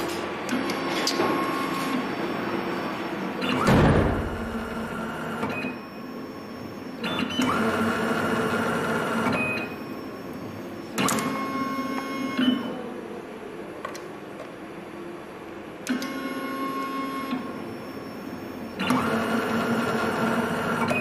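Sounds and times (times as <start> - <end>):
cable stripping machine whirring: 18.4 - 21.0.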